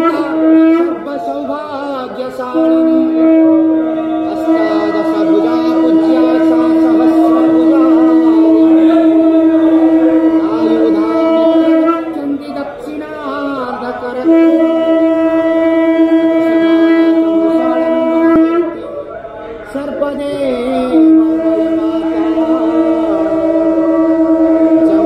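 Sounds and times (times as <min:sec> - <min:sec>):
conch shell blasts: 0:00.0 - 0:01.0, 0:02.6 - 0:12.2, 0:14.2 - 0:18.8, 0:20.9 - 0:25.0
voices: 0:00.0 - 0:25.0.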